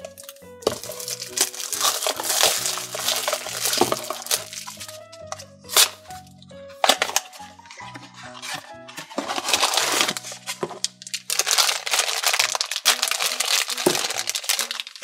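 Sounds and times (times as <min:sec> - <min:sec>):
foil bag crinkling and tearing: 0:00.0 - 0:05.0, 0:05.7 - 0:06.2, 0:06.8 - 0:15.0
background music: 0:00.0 - 0:15.0.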